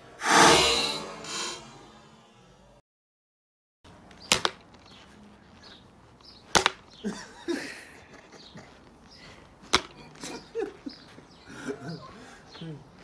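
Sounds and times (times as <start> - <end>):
kicks smacking plastic bottle: 6.5 - 6.8.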